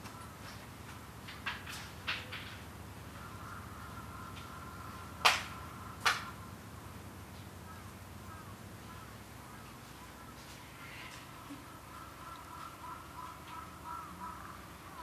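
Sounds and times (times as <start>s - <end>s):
steady wind: 0.0s - 15.0s
sharp hand claps: 5.2s - 6.3s.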